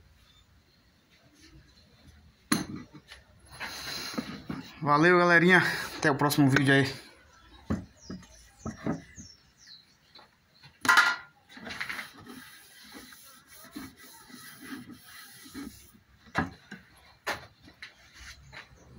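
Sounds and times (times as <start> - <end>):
wood rubbing and knocking: 7.6 - 9.4, 11.2 - 18.8
wood scraping: 11.5 - 18.9.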